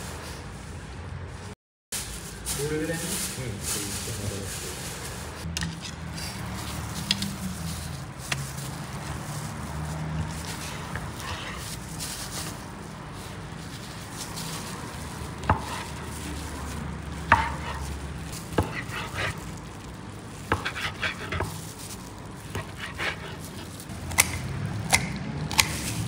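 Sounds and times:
kitchen shears cutting chicken: 14.1 - 19.6, 20.4 - 26.0.

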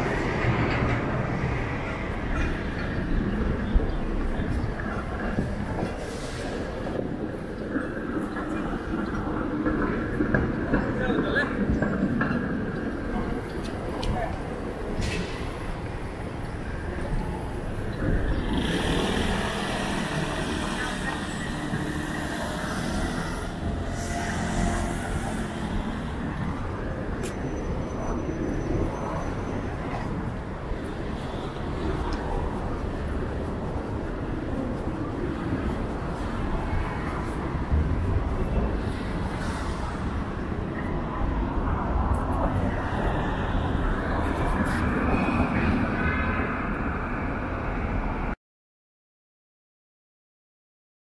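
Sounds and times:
traffic rumble: 0.0 - 48.4
cars driving by: 13.0 - 47.0.

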